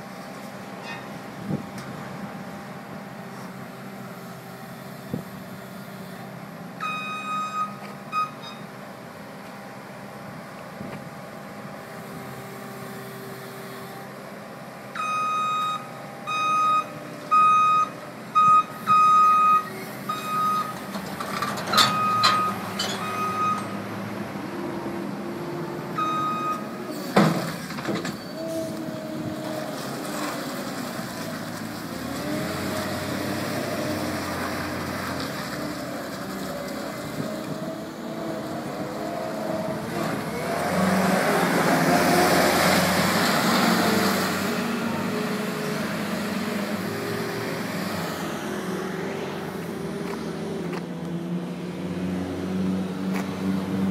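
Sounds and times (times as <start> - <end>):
reversing alarm beeps: 6.8 - 8.7, 15.0 - 20.8, 21.9 - 23.8, 26.0 - 26.6
diesel engine running: 15.9 - 53.9
engine revving: 37.1 - 50.8.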